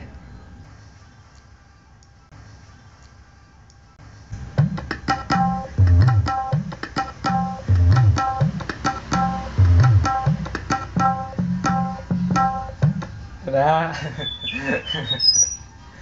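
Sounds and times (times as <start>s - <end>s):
sampled drum strokes in rhythm: 4.4s - 13.2s.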